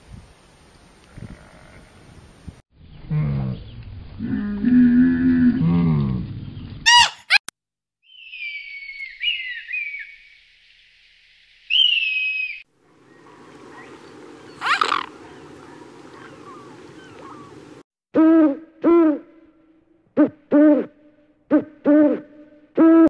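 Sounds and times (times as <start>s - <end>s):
shrill descending bird calls: 6.9s - 7.4s, 8.0s - 10.6s, 11.6s - 17.6s
owl hooting: 11.7s - 19.2s
low rushing noise: 12.9s - 17.8s
short loud bird call: 14.5s - 15.4s.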